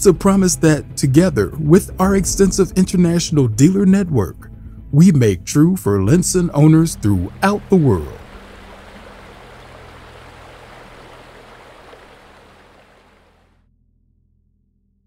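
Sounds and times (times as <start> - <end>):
low steady hum: 6.1 - 13.5
water rushing along boat hull: 6.1 - 13.5.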